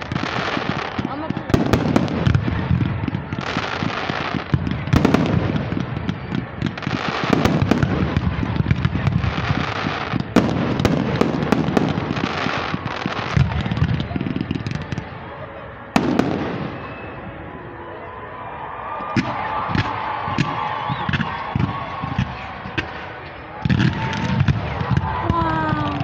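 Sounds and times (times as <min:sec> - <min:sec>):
fireworks fountains hissing: 0:00.0 - 0:17.4
fireworks bangs: 0:00.0 - 0:17.6, 0:19.0 - 0:26.0
fireworks crackling: 0:00.0 - 0:17.6, 0:18.6 - 0:26.0.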